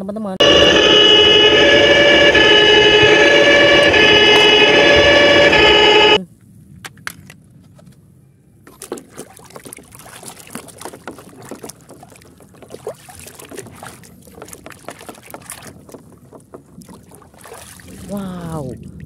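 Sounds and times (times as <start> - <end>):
water splashing in plastic basin: 8.7 - 19.0.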